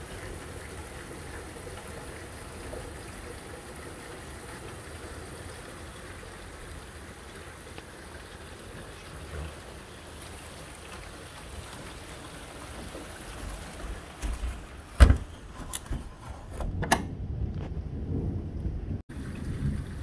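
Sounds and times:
steady rain: 0.0s - 16.0s, 17.2s - 20.0s
low thunder rumble: 16.7s - 20.0s
thunder cracks: 16.9s - 20.0s.

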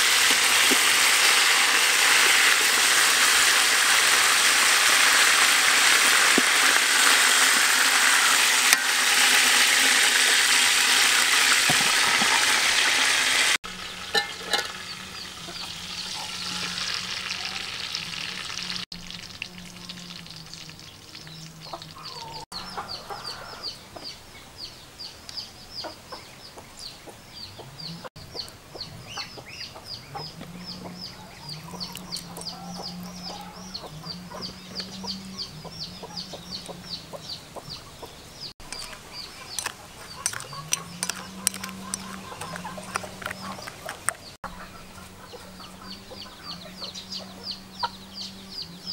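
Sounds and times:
chicken sizzling in hot fat: 0.0s - 23.5s, 38.4s - 46.0s.

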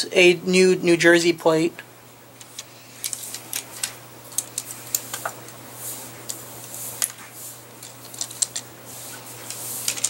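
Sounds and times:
soft rubbing: 4.7s - 10.0s.

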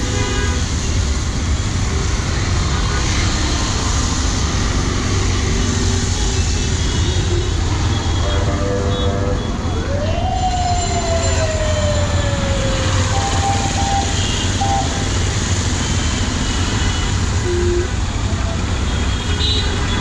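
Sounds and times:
tyres on wet road: 0.0s - 9.8s, 10.6s - 20.0s
siren: 8.3s - 15.4s.

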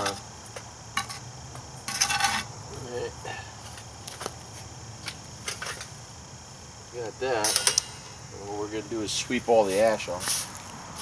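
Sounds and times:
high insect drone: 0.0s - 11.0s
metal scoop scraping charcoal: 1.8s - 2.5s.

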